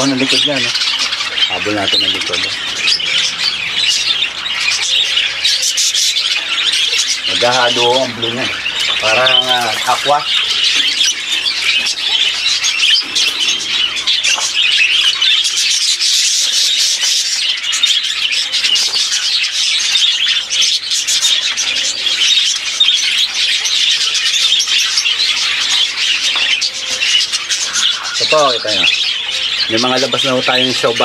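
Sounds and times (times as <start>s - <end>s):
budgerigars chirping and squawking: 0.0s - 31.0s.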